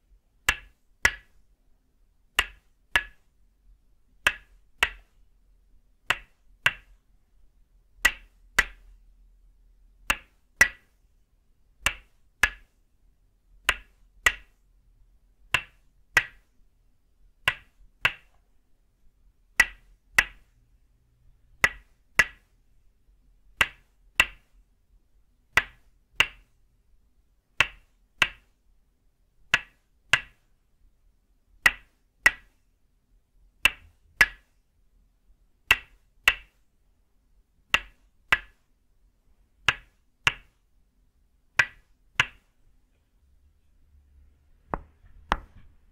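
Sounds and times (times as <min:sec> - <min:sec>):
wooden mallet striking wooden peg: 0:00.4 - 0:01.4, 0:02.4 - 0:03.2, 0:04.2 - 0:05.2, 0:06.0 - 0:07.0, 0:08.0 - 0:08.9, 0:10.0 - 0:11.0, 0:11.8 - 0:12.7, 0:13.6 - 0:14.6, 0:15.5 - 0:16.5, 0:17.4 - 0:18.5, 0:19.5 - 0:20.5, 0:21.5 - 0:22.5, 0:23.5 - 0:24.5, 0:25.5 - 0:26.6, 0:27.6 - 0:28.5, 0:29.5 - 0:30.4, 0:31.6 - 0:32.6, 0:33.6 - 0:34.5, 0:35.6 - 0:36.6, 0:37.7 - 0:38.6, 0:39.6 - 0:40.6, 0:41.6 - 0:42.5, 0:44.7 - 0:45.8.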